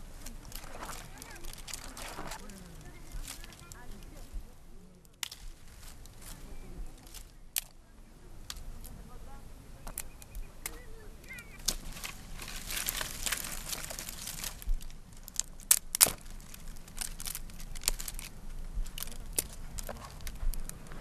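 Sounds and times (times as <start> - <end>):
branches snapping: 0.0 - 4.4, 5.0 - 7.8, 8.4 - 9.0, 9.8 - 21.0
twigs rustling and crackling: 0.0 - 21.0.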